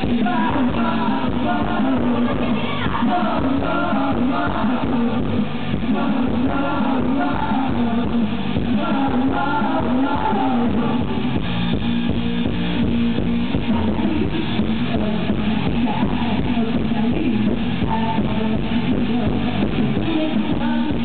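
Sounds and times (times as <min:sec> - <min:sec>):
bass guitar: 0:00.0 - 0:21.0
drum kit beat: 0:00.0 - 0:21.0
electric guitars: 0:00.0 - 0:21.0.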